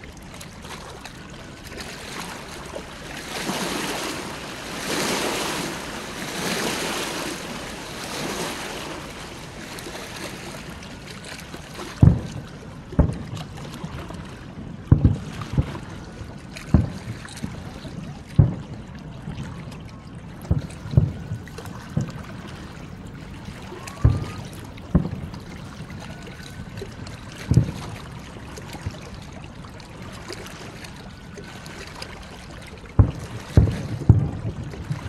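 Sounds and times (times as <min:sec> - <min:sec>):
distant firework booms: 0:24.0 - 0:25.4.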